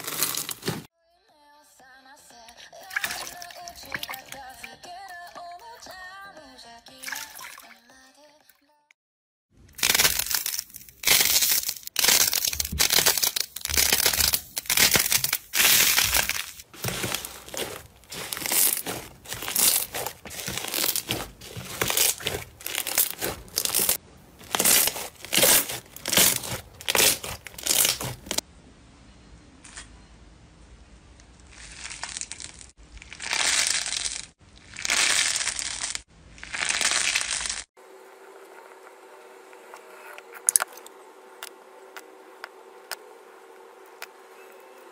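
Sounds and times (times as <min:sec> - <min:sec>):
hands squeezing slime: 0:00.0 - 0:00.8, 0:02.9 - 0:04.7, 0:09.8 - 0:28.4, 0:31.5 - 0:37.6
faint steady hum: 0:37.8 - 0:44.9.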